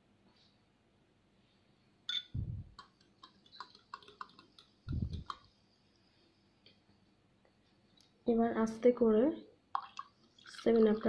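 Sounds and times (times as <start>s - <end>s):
spoon clinking against glass: 2.1s - 2.4s.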